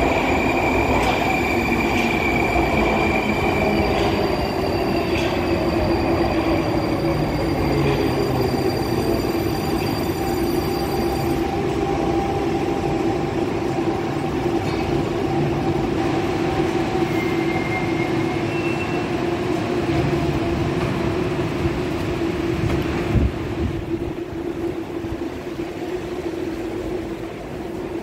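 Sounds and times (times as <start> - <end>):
metro train rumbling: 0.0 - 28.0.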